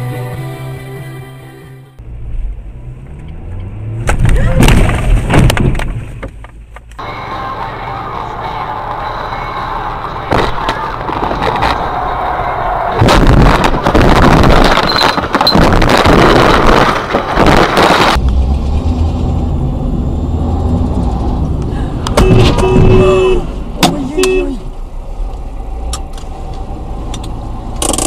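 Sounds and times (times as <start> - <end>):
car driving noise: 2.0 - 28.0
car droning: 7.0 - 16.8, 18.2 - 28.0
car crash impacts: 12.9 - 18.2.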